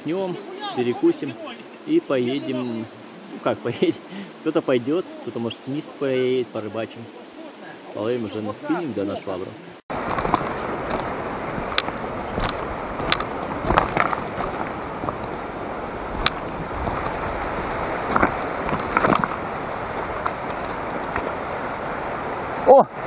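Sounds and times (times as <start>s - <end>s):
river rushing over stones: 9.9s - 23.0s.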